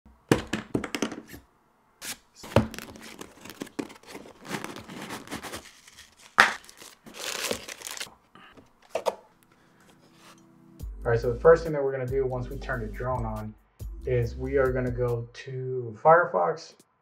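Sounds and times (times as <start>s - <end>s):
plastic packaging rustling: 2.4s - 9.1s.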